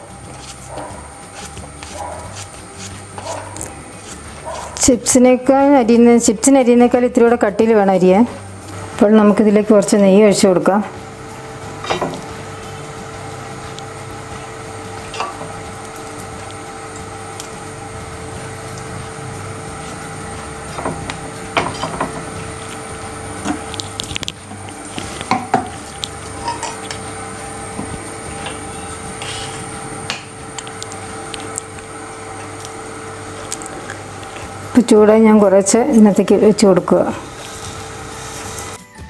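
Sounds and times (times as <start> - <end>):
steady background hum: 0.0 - 38.8
utensils and dishes clinking: 11.8 - 12.4, 15.0 - 16.3, 20.7 - 22.8, 23.4 - 31.6.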